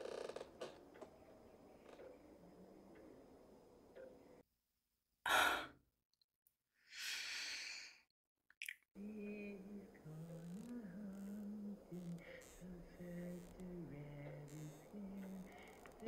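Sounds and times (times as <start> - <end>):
woman sighing: 5.3 - 5.8
low wavering hum: 9.0 - 16.0.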